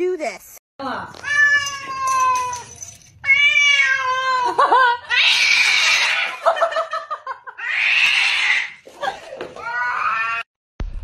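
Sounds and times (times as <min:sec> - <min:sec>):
cat yowling: 0:01.2 - 0:06.4, 0:07.6 - 0:08.8, 0:09.6 - 0:10.5.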